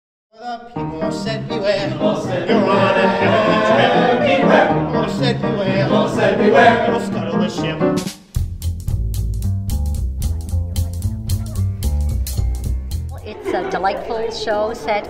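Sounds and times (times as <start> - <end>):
cast singing a chorus: 0.4 - 8.0.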